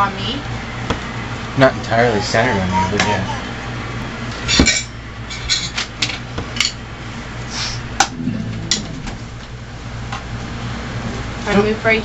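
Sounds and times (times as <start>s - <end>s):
low steady hum: 7.9s - 10.8s.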